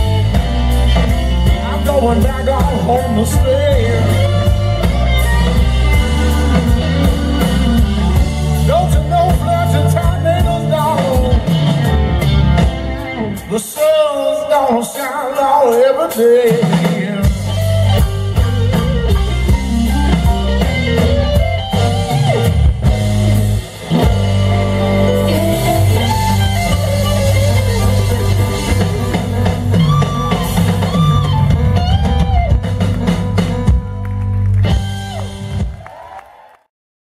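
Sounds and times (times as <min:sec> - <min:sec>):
electric guitar lead lines: 0:00.0 - 0:15.0, 0:16.4 - 0:35.7
bass guitar: 0:00.0 - 0:36.0
drum kit: 0:00.0 - 0:36.2.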